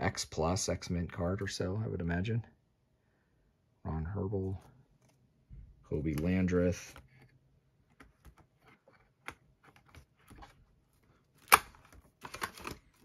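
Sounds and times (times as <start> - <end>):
plastic binder sleeves clicking: 7.9 - 13.0.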